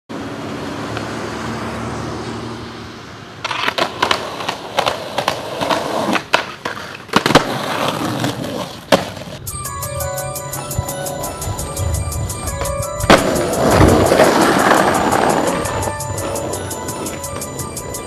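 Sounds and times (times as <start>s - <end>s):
skateboard wheels rolling on concrete: 0.1s - 18.0s
skateboard clacks and knocks: 3.4s - 9.4s, 12.6s - 18.0s.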